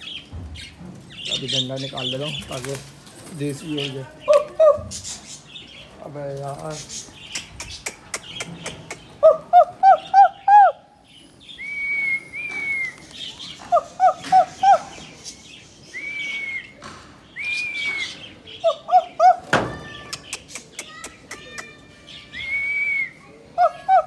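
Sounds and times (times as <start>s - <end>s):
whistle-like calls: 11.6s - 13.0s, 15.9s - 16.8s, 17.4s - 18.2s, 22.3s - 23.2s.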